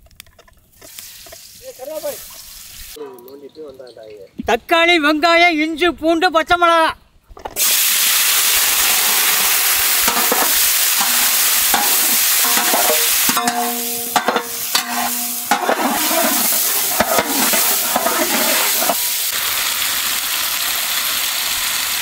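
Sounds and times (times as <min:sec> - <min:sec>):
vegetables sizzling in hot oil: 0:00.7 - 0:03.0, 0:07.6 - 0:22.0
ladle stirring and scraping: 0:08.9 - 0:19.3
ladle knocking against pot: 0:10.1 - 0:19.0.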